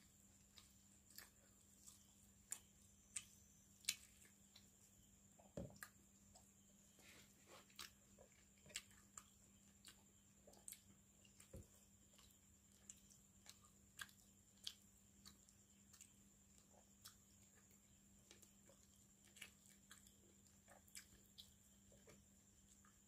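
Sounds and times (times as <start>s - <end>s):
low hum with high whine: 0.0s - 23.0s
mouth chewing: 0.2s - 23.0s
wet clicks of eating by hand: 0.4s - 4.8s, 7.7s - 23.0s.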